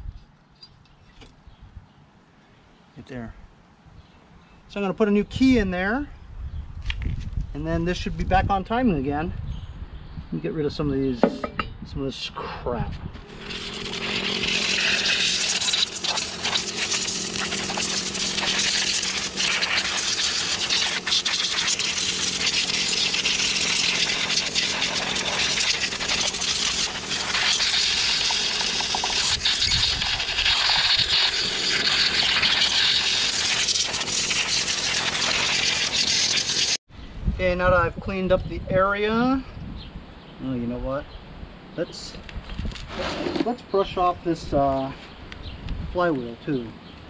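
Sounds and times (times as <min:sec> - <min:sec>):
air blow gun hissing: 0:13.2 - 0:36.8.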